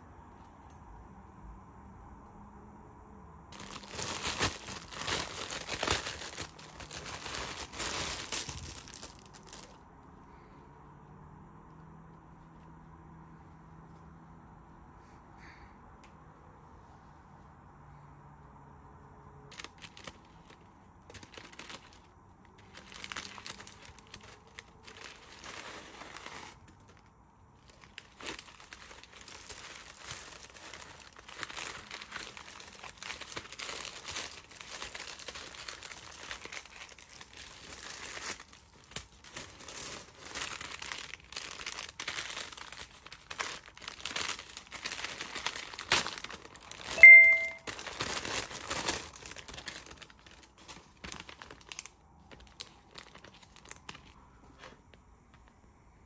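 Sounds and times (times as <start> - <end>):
paper crinkling and rustling: 3.5 - 9.8, 19.5 - 54.8.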